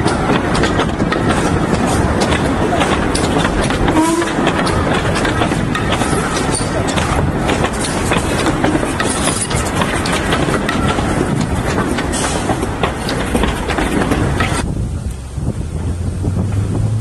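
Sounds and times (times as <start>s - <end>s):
railway coaches rolling past: 0.0s - 17.0s
wheels clicking over rail joints: 0.0s - 17.0s.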